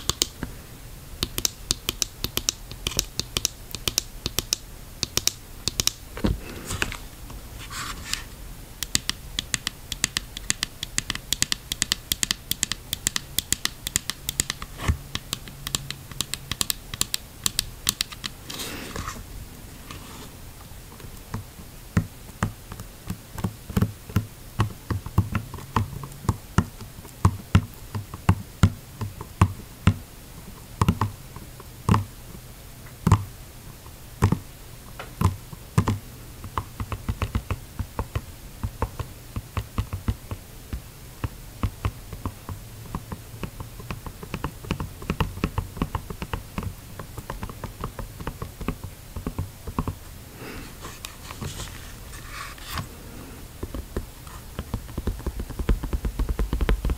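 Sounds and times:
scratching rub: 7.6 - 8.3, 18.4 - 20.4, 50.4 - 53.4
fingernails tapping on mask: 8.8 - 18.4, 35.0 - 50.0, 53.6 - 56.9.

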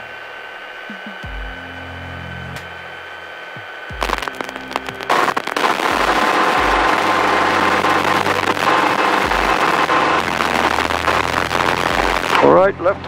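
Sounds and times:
helicopter engine and rotor: 5.4 - 12.8.

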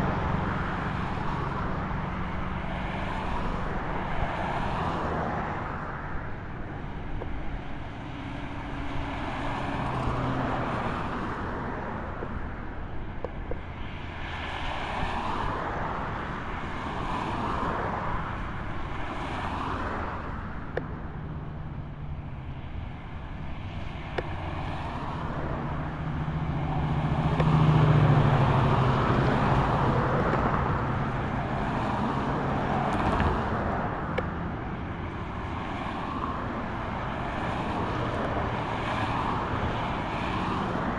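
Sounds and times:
cars passing: 0.0 - 40.9
vehicle with low engine drone: 0.0 - 40.9.

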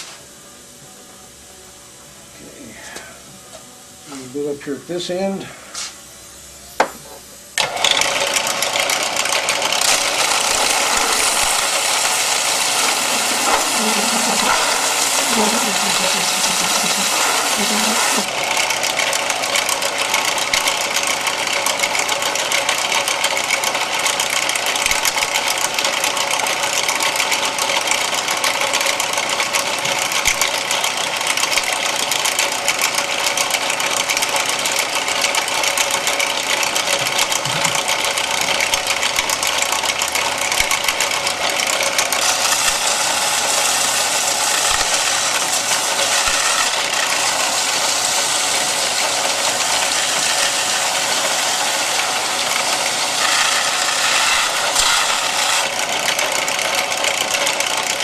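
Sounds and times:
belt sander running: 6.8 - 58.0
plastic grinding on sanding belt: 8.1 - 19.2, 35.2 - 57.6.

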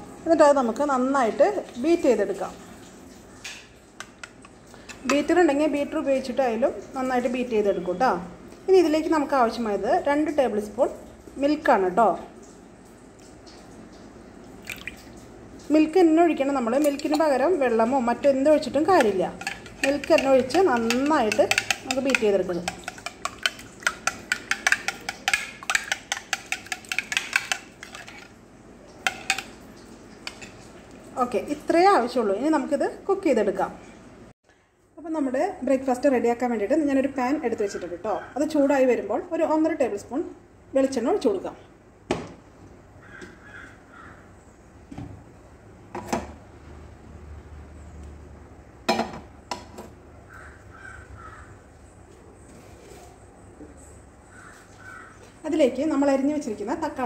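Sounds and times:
fork clinking against bowl: 18.9 - 28.3
crows cawing: 43.0 - 44.3, 50.3 - 51.6, 54.3 - 55.3.

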